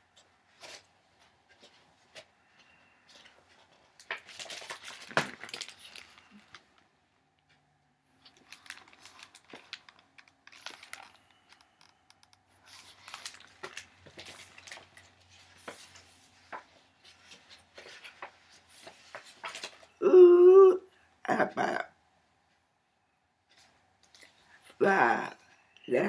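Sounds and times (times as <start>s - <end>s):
book pages flipping: 3.1s - 6.9s, 8.2s - 20.0s
drawn-out voice sound: 20.0s - 21.9s, 24.8s - 26.0s.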